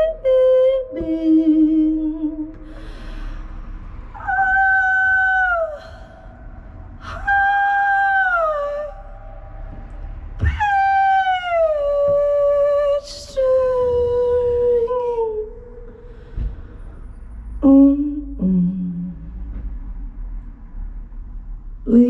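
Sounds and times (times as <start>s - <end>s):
woman singing long notes: 0.0s - 2.7s, 4.2s - 6.4s, 7.0s - 9.4s, 10.4s - 15.9s, 17.6s - 19.4s.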